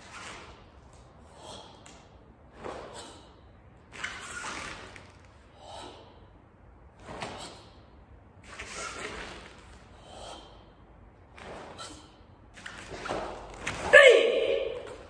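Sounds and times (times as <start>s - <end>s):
sharp forceful breaths: 1.2s - 3.7s, 5.4s - 8.0s, 9.8s - 12.3s.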